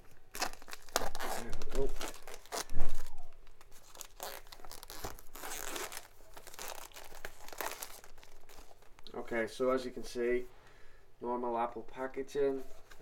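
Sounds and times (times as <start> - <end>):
plastic shrink wrap crinkling: 0.0 - 9.1.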